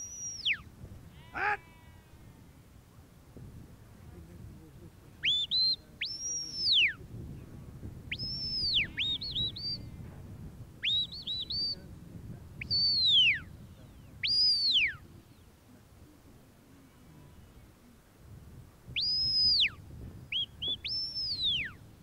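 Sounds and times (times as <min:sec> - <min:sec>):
short rising whistle chirps: 0:00.0 - 0:00.6, 0:19.0 - 0:19.7, 0:20.3 - 0:21.8
loud high whistles: 0:19.0 - 0:19.7.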